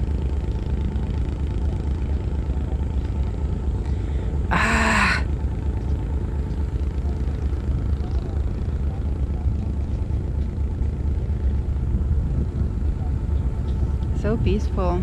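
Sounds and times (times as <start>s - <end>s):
boat diesel engine rumbling: 0.0s - 15.0s
person exclaiming: 4.5s - 5.3s.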